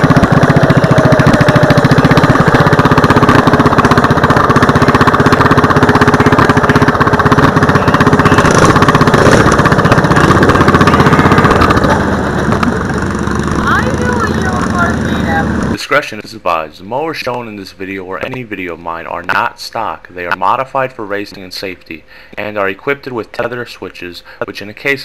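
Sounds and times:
lawn mower engine running: 0.0s - 15.8s.

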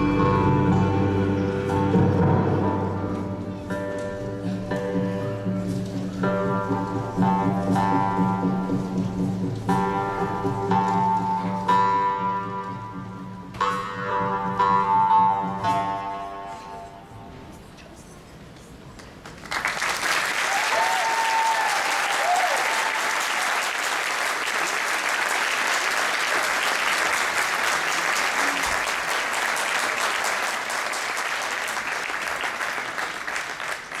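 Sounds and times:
audience applause: 19.2s - 34.0s.

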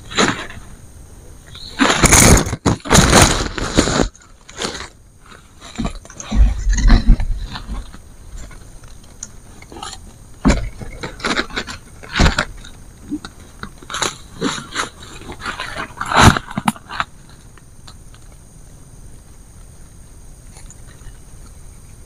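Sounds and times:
bamboo strips knocking and creaking: 1.6s - 18.5s.

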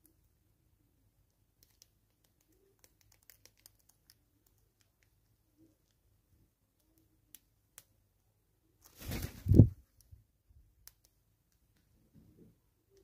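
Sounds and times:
birds and squirrel pecking at seed: 1.3s - 8.0s.

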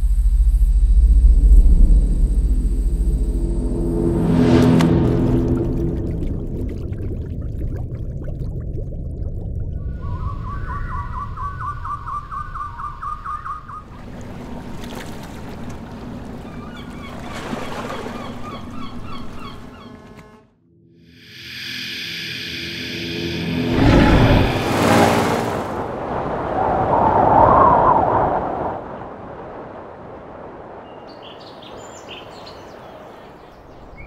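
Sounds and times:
steady rushing noise: 21.1s - 27.1s.

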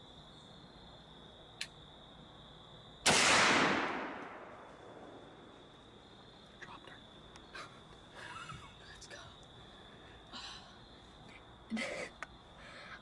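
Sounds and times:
gunshot echoing through woods: 3.0s - 5.4s.

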